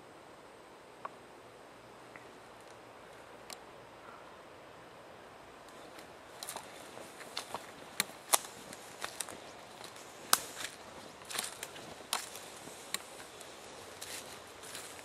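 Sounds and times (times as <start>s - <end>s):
twigs cracking underfoot: 5.7s - 15.0s
footsteps through leaf litter: 5.8s - 15.0s.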